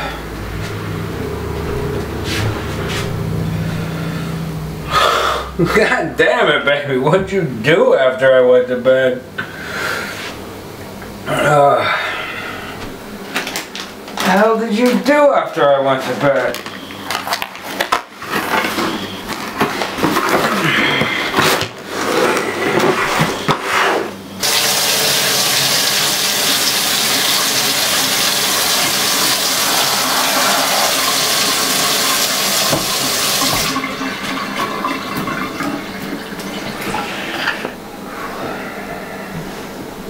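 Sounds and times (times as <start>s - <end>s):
paper package crinkling: 16.0s - 21.9s
faucet running into sink: 24.4s - 37.5s.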